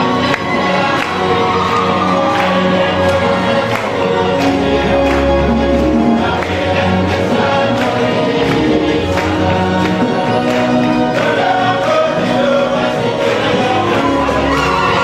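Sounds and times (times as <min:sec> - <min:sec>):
choir singing long notes: 0:00.0 - 0:15.0.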